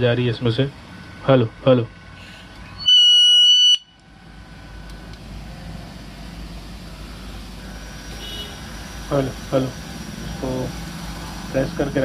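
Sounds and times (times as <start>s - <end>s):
loud electronic beep: 2.8s - 4.0s.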